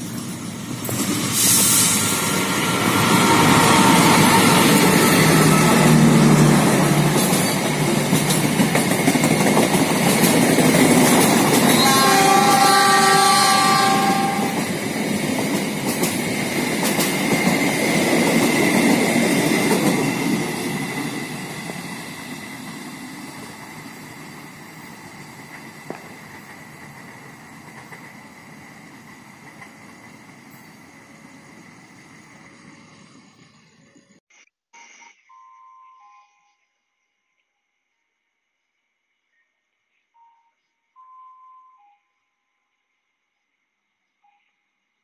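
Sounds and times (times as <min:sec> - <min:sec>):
train coaches rumbling past: 0:00.0 - 0:34.2
train horn: 0:11.6 - 0:14.7.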